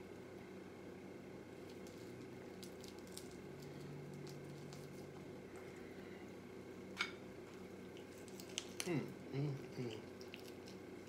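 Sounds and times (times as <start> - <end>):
fried chicken torn and chewed: 1.6 - 5.6, 7.8 - 9.0, 9.8 - 11.0.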